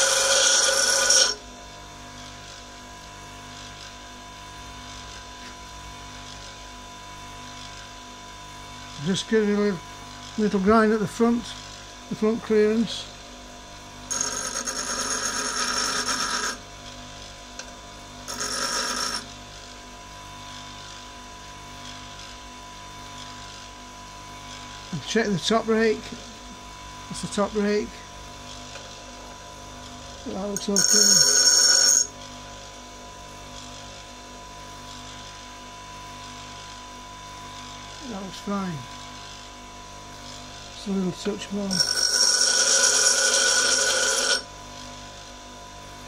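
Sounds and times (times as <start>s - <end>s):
grinding screech: 0.0s - 1.4s, 14.1s - 16.6s, 18.3s - 19.3s, 30.5s - 32.1s, 41.6s - 44.5s
tool grinding hiss: 0.0s - 1.5s, 13.8s - 19.8s, 24.4s - 35.5s, 37.5s - 45.4s
bench grinder humming: 0.0s - 19.8s, 23.0s - 46.0s.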